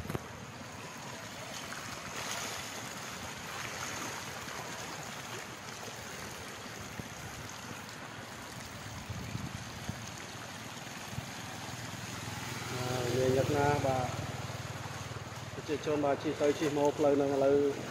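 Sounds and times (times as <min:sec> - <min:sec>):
floodwater rushing: 0:00.0 - 0:17.9.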